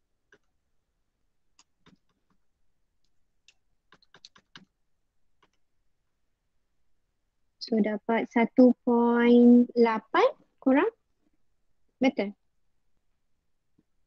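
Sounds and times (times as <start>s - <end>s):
calculator keys clicking: 3.9s - 4.7s.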